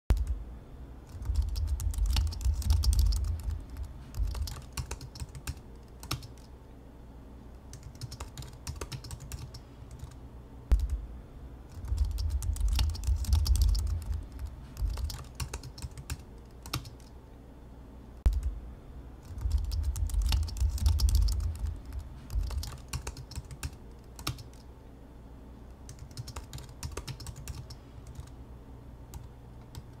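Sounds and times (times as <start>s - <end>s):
laptop keyboard typing: 1.1s - 6.5s, 7.7s - 11.0s, 11.7s - 17.1s, 18.3s - 18.5s, 19.2s - 24.7s, 25.9s - 28.3s, 29.1s - 30.0s.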